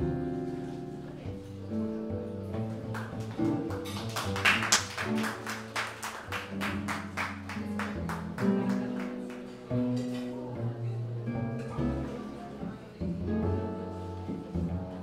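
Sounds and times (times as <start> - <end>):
jazz guitar strumming chords: 0.0 - 15.0
upright double bass notes: 0.0 - 15.0.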